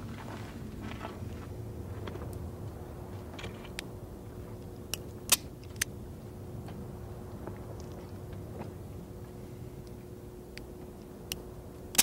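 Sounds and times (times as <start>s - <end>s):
faint steady hum: 0.0s - 12.0s
revolver dry-fire clicks: 9.8s - 12.0s.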